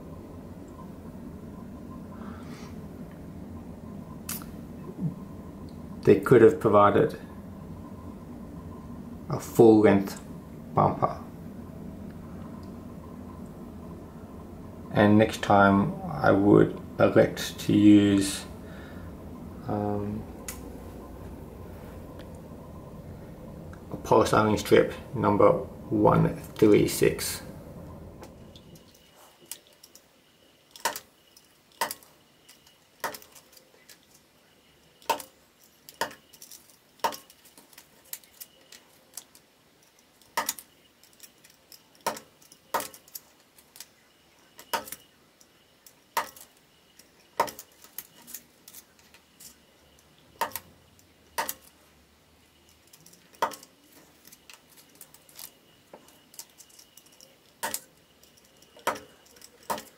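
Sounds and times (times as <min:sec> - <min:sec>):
knife cutting plastic clicks: 0:51.3 - 0:51.8.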